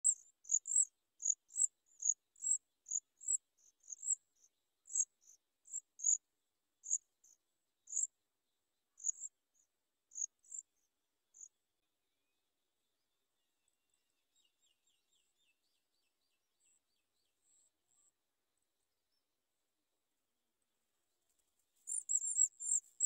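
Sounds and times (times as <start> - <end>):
insect chirping: 7.9 - 8.1, 21.9 - 23.0.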